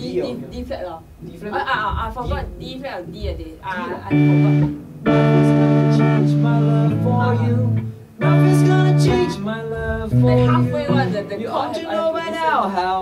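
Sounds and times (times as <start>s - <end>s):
band playing held chords: 4.0s - 11.6s.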